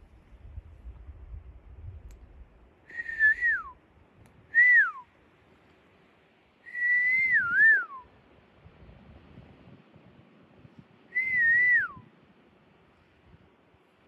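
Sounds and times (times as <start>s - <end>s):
person whistling: 2.9s - 3.7s, 4.6s - 5.0s, 6.7s - 8.0s, 11.2s - 12.0s.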